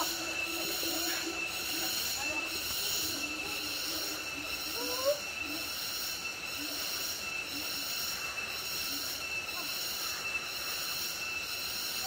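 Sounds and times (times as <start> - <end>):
cicadas whining: 0.0 - 12.0.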